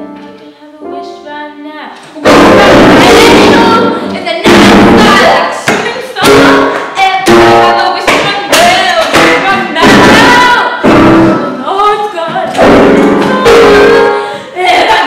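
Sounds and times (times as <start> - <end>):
girl singing loudly: 0.4 - 15.0
piano chords struck hard: 2.2 - 8.3, 9.0 - 11.7, 12.5 - 14.4.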